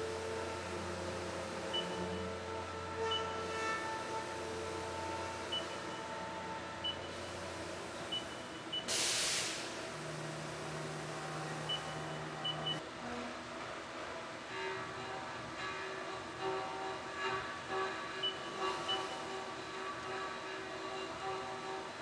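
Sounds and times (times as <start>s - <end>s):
steady machine tones: 0.0s - 8.9s, 9.6s - 22.0s
coolant spray hiss: 8.9s - 11.6s.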